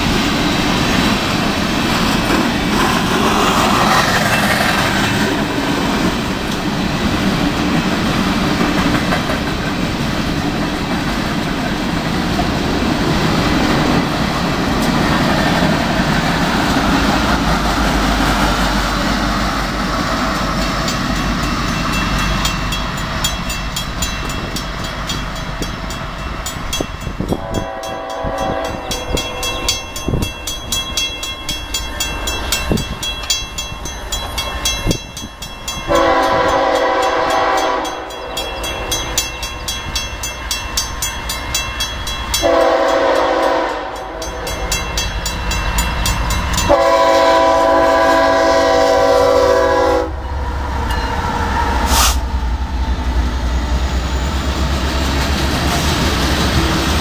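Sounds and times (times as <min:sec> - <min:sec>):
crossing signal bell ringing: 0:20.3 - 0:48.8, 0:49.5 - 0:51.5
locomotive air horn blasts: 0:27.4 - 0:29.5, 0:35.9 - 0:38.3, 0:42.4 - 0:44.3, 0:46.7 - 0:50.2.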